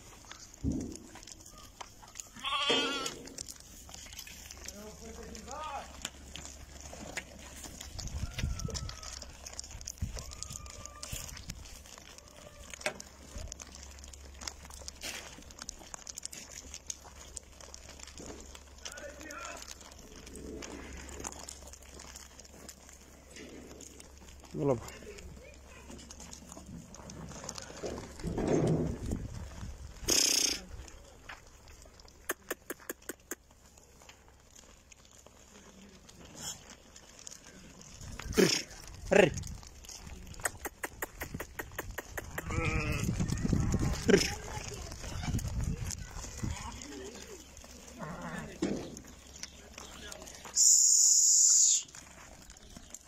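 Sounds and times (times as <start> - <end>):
hooves scuffing on dirt: 0.0 - 53.0
sharp clicks: 40.4 - 42.6
faint thin whistling tones: 50.5 - 51.9.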